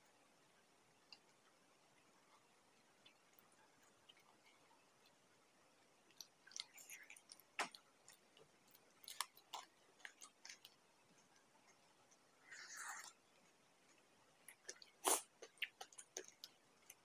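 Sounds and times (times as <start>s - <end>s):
person chewing crunchy food: 6.0s - 11.4s, 12.4s - 17.0s.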